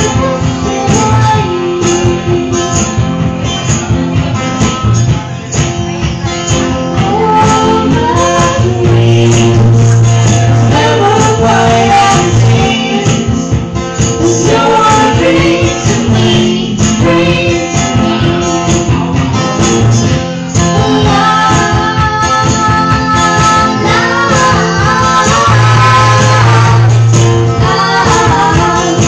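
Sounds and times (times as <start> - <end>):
man singing into a microphone: 0.0 - 2.7, 6.9 - 19.6
live band music: 0.0 - 29.0.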